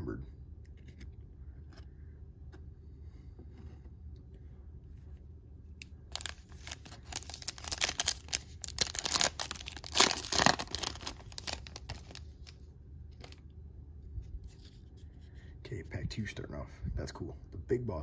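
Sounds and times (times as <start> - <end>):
card pack wrapper tearing: 6.1 - 12.6.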